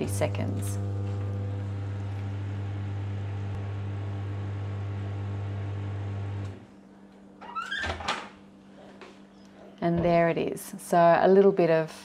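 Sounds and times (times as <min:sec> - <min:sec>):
microwave oven humming: 0:00.0 - 0:07.1.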